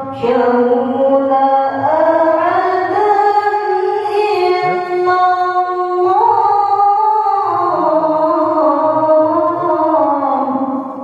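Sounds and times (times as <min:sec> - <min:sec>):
woman reciting melodically: 0:00.0 - 0:11.0.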